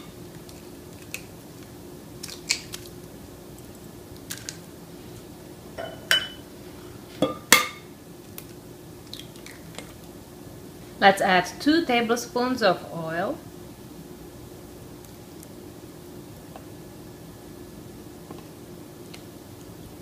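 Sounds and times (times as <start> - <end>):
eggshells cracking on glass bowl: 2.2 - 3.0, 4.2 - 4.6.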